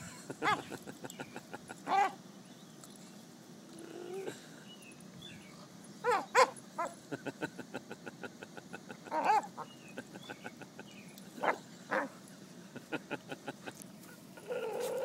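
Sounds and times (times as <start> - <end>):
dog whooping: 14.4 - 15.0.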